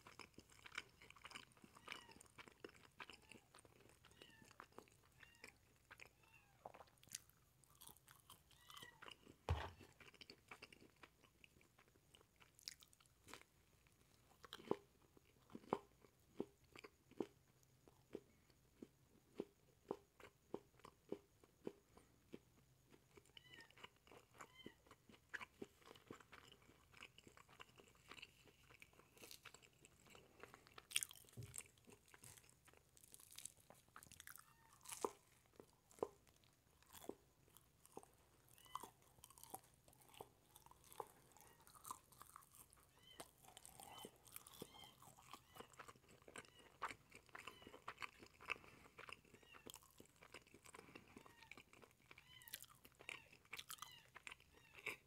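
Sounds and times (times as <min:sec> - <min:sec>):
person chewing: 0:00.0 - 0:55.0
thump: 0:09.5 - 0:09.8.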